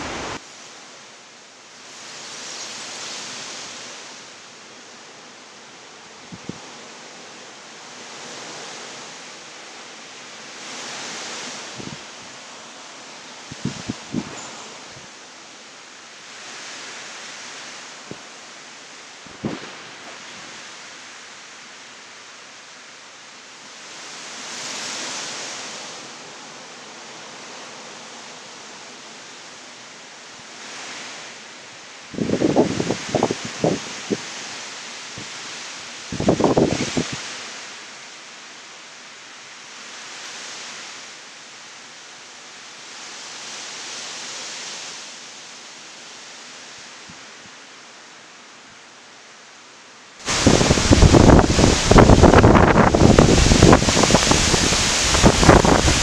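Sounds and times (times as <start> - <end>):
heavy rain: 0.0 - 56.0
storm wind through trees: 0.0 - 56.0.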